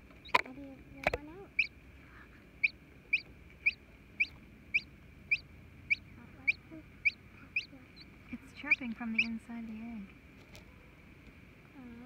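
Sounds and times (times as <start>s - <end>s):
chick peeping: 0.1s - 1.7s, 2.6s - 9.8s.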